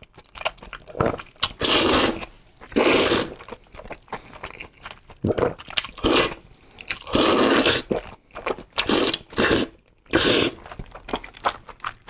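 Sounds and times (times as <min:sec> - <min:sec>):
person slurping noodles: 0:00.9 - 0:03.6, 0:05.3 - 0:06.4, 0:07.0 - 0:08.1, 0:08.8 - 0:10.8.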